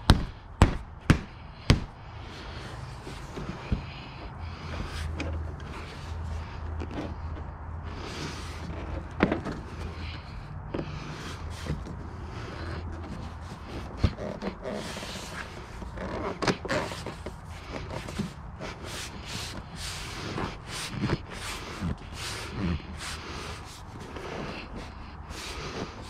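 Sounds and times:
hands rubbing plastic cover: 11.1s - 26.0s.

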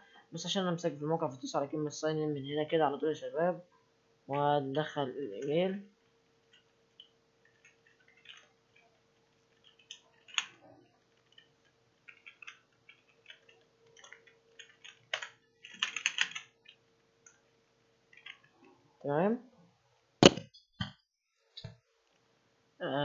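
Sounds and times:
faint steady hum: 0.0s - 20.6s
keyboard typing clicks: 9.6s - 10.6s, 12.1s - 16.8s.

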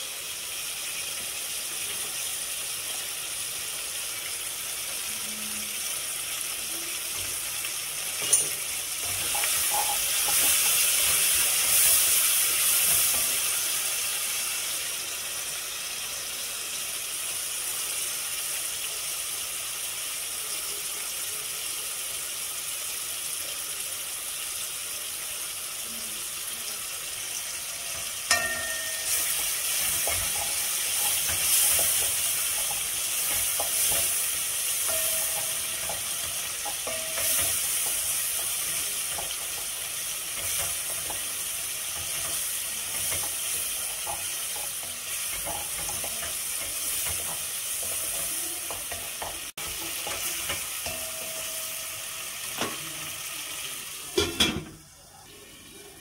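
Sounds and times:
vegetables sizzling in oil: 0.0s - 56.0s
wooden spoon scraping a pot: 8.2s - 13.4s, 29.1s - 39.7s.

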